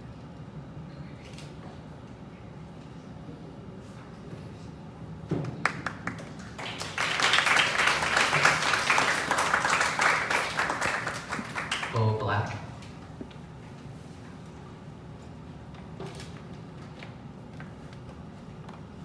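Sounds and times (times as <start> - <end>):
audience clapping: 5.4 - 12.3.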